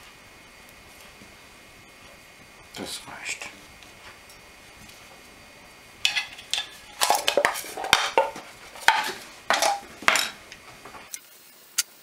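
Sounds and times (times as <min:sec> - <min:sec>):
metal hand tools clinking: 0:06.1 - 0:10.4.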